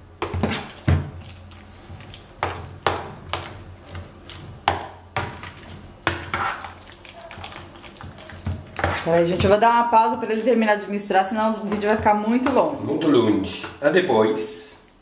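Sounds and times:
soft squishing of mashed potato: 0.2s - 9.3s
spoon scraping plastic bowl: 5.2s - 6.8s, 7.4s - 9.5s.

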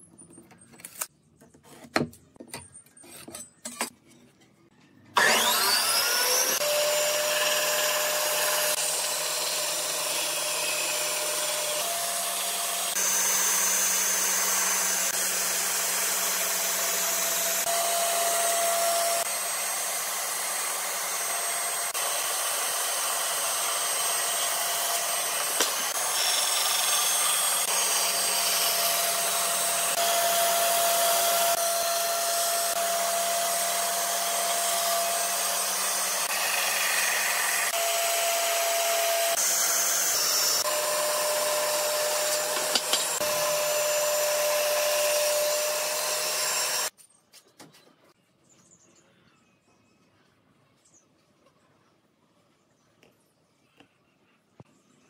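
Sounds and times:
bandsaw cutting wood: 5.2s - 46.9s.

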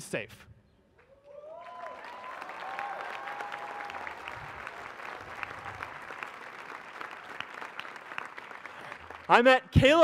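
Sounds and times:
faint crowd cheer: 1.1s - 8.0s
crowd applauding: 1.2s - 9.6s.

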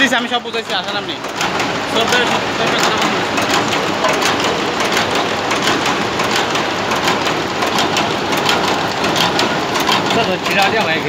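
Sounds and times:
machine clattering: 0.0s - 11.0s.

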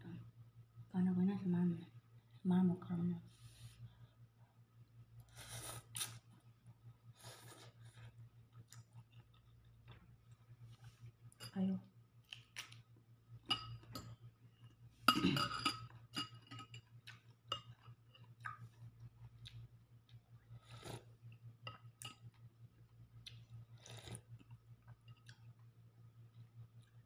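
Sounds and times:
spoon clinking ceramic bowl: 13.5s - 14.1s.

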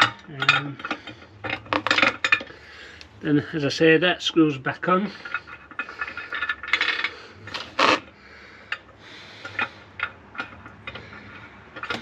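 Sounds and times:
scraping and rubbing: 5.1s - 8.1s.

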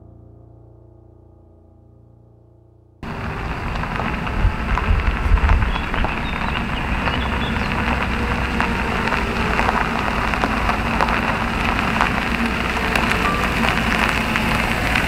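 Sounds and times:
low engine rumble: 3.0s - 15.0s
tyres crackling on gravel: 3.0s - 15.0s.

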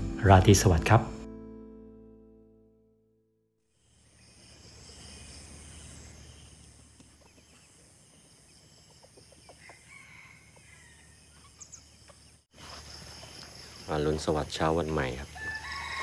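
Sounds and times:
chickens clucking: 6.5s - 9.9s.

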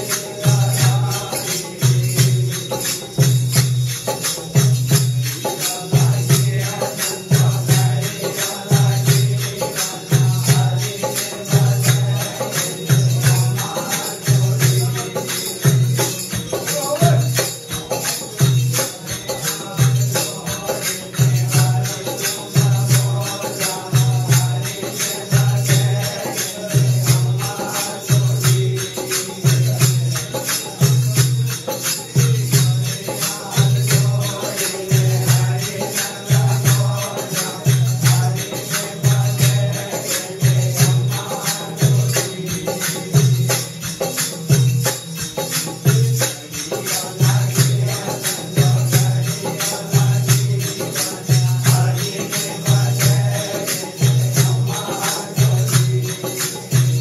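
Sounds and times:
steady low drum beat: 0.0s - 45.0s
hand cymbals clashing: 0.0s - 57.0s
men singing together: 0.0s - 57.0s.

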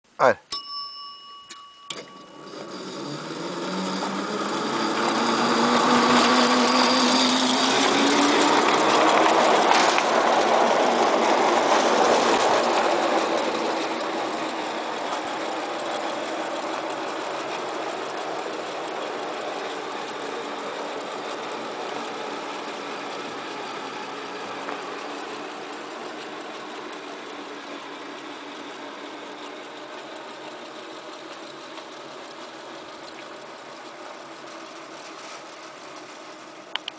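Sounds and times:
miniature train running on rails: 0.6s - 36.9s.

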